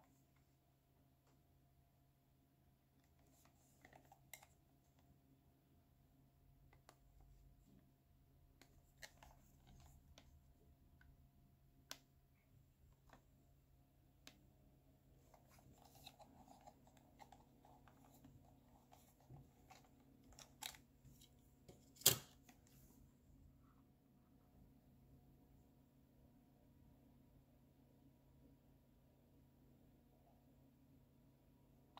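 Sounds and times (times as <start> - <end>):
faint steady hum: 0.0 - 31.9
soft handling noise: 3.0 - 5.2, 8.5 - 11.2, 11.8 - 23.8.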